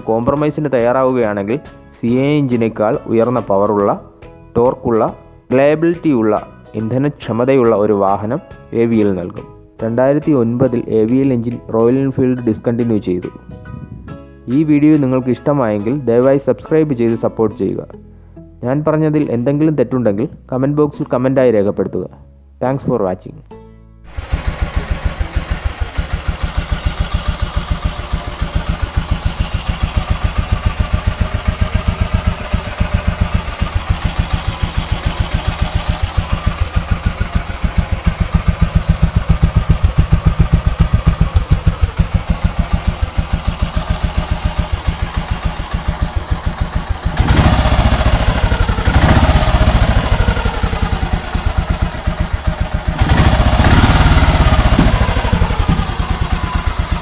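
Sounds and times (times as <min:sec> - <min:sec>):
motorcycle engine idling and revving: 0:00.0 - 0:03.9, 0:24.1 - 0:57.0.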